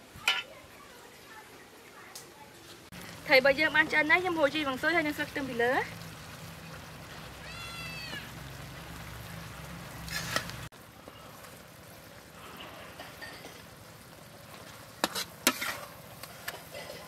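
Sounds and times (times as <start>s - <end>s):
low hum from wok: 2.9s - 17.0s
cat meowing: 7.4s - 8.3s
ladle scraping wok: 9.9s - 11.6s, 12.4s - 17.0s.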